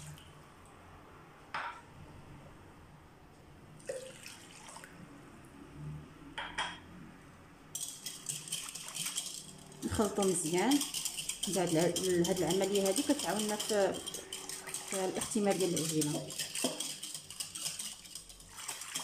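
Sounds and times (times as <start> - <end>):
water pouring into glass bowl: 3.8 - 4.9, 7.8 - 19.0
whisk clicking against bowl: 7.8 - 19.0.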